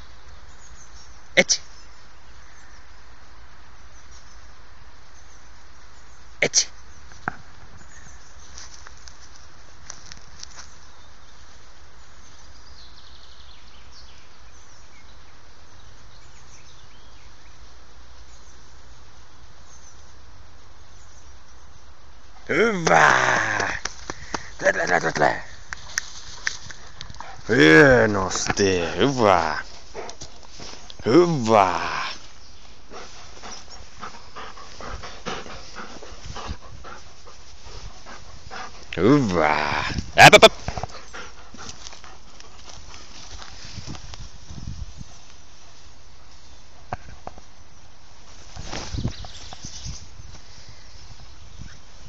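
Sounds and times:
steady hiss: 0.0 - 52.0
dog panting: 27.0 - 27.5, 28.3 - 30.5, 32.9 - 39.0, 40.6 - 43.1.

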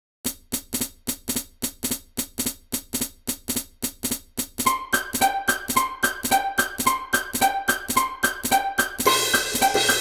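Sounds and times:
snare and hi-hat drum pattern: 0.2 - 10.0
melody notes: 4.6 - 10.0.

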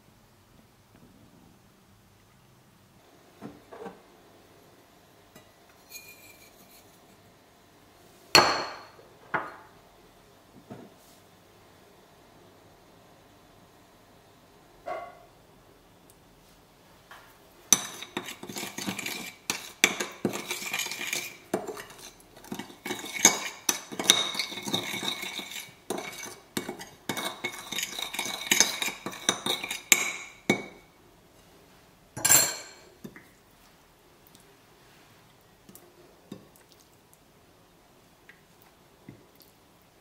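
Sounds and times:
teaspoon clinking in glass bowl: 5.8 - 6.8, 17.7 - 30.8.

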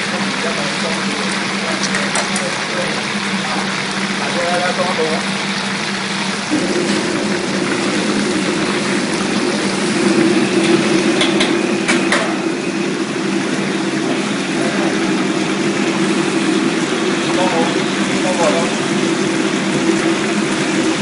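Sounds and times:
crabs sizzling in hot oil: 0.0 - 21.0
low hum: 6.1 - 21.0.

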